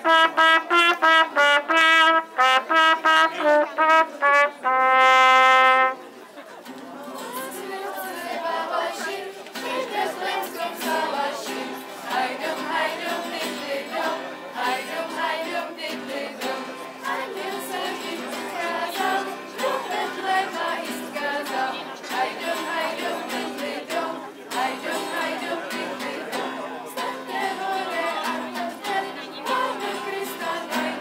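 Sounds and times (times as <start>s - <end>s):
children's choir singing: 7.0s - 31.0s.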